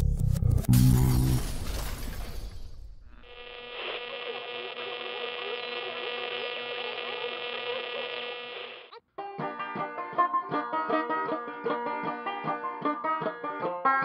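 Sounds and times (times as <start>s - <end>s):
radio tuning buzz and whistles: 3.1s - 9.0s
banjo music: 9.1s - 14.0s.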